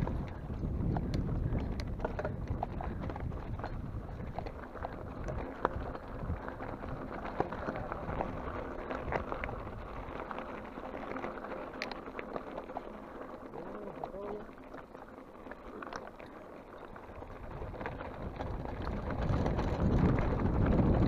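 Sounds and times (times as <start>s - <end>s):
gravel and bike rattling: 0.0s - 21.0s
tyres crunching on gravel: 0.0s - 21.0s.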